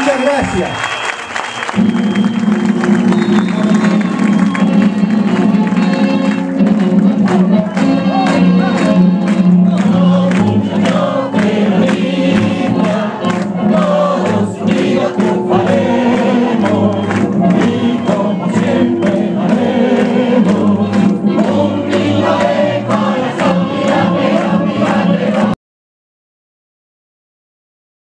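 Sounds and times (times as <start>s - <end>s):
crowd clapping along: 0.0s - 25.6s
many voices singing together: 7.1s - 25.6s.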